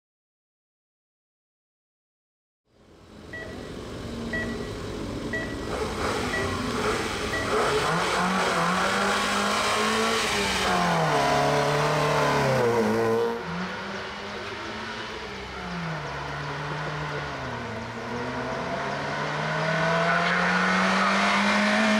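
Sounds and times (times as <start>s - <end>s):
start timer beeps: 3.3s - 5.7s, 6.3s - 6.7s, 7.3s - 7.8s
race car engine revving: 3.8s - 21.9s.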